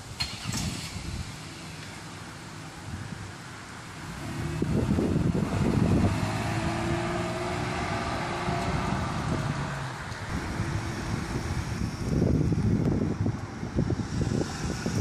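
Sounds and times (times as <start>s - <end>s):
car driving away: 4.0s - 15.0s
wind buffeting microphone: 4.2s - 15.0s.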